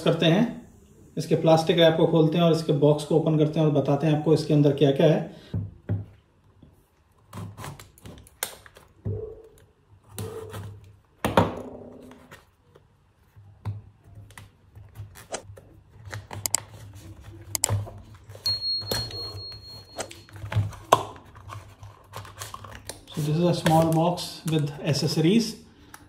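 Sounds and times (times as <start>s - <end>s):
thin high tone: 18.4s - 20.3s
plastic wrap crinkling: 20.1s - 25.0s.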